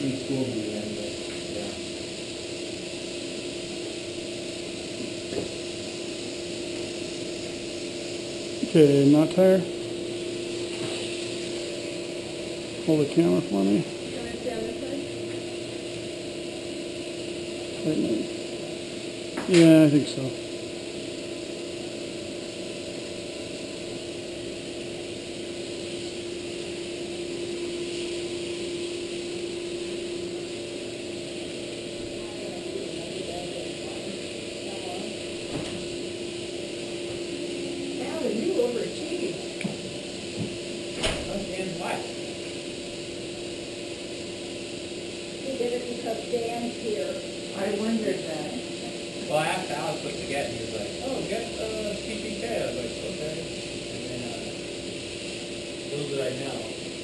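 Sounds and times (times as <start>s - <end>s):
equipment hum with hiss: 0.0s - 57.0s.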